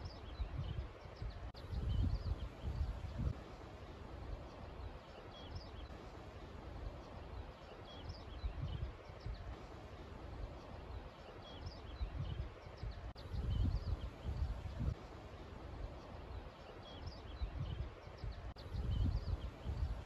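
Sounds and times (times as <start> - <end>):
small birds chirping: 0.0 - 20.0
wind buffeting microphone: 0.0 - 20.0.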